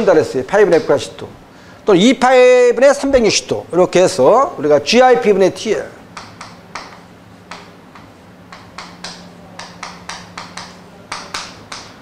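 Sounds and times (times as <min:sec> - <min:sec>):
chalk tapping and scratching on blackboard: 0:06.2 - 0:12.0.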